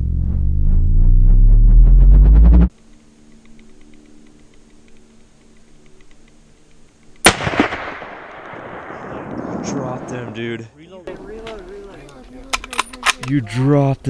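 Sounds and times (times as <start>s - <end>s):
rifle shot with echo: 7.2s - 10.4s.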